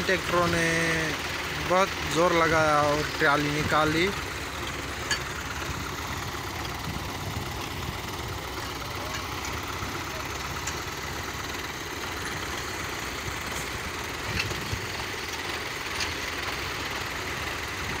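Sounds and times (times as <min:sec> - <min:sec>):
tractor engines idling: 0:00.0 - 0:18.0.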